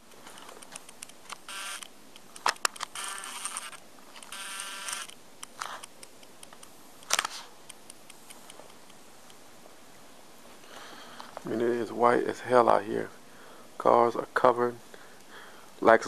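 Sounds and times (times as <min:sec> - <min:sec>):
rustling and scraping: 0:00.0 - 0:01.4, 0:05.5 - 0:09.0.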